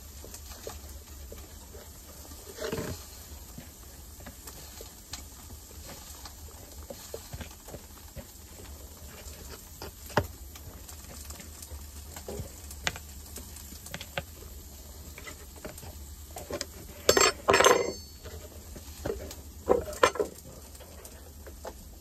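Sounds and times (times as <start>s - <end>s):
table knife scraping bread: 2.2s - 3.3s, 8.9s - 10.3s, 15.0s - 20.4s.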